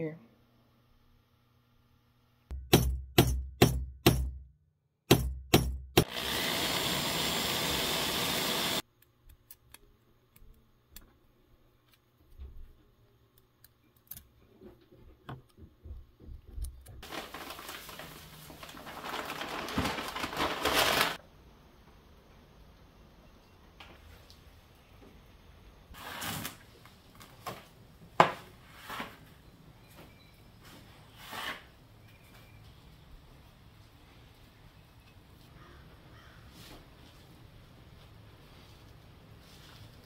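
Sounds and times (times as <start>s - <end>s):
steady machine noise: 6.0s - 8.8s.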